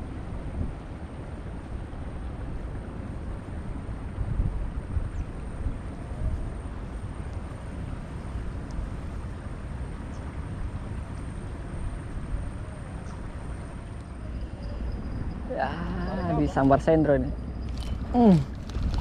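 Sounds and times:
wind buffeting microphone: 0.0s - 19.0s
faint ticks: 8.6s - 8.8s.

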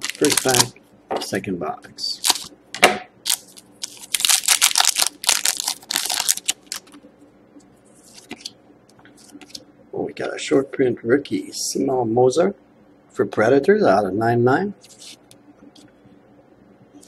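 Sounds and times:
foil wrapper tearing and crinkling: 0.0s - 0.7s, 2.2s - 2.5s, 3.2s - 7.0s
faint handling of cards: 3.3s - 9.6s, 14.8s - 16.0s.

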